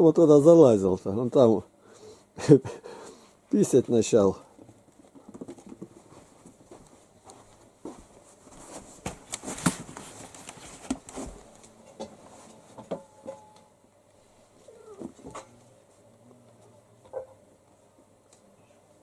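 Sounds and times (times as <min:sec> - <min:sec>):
cats scampering on a rug: 0:04.5 - 0:12.8.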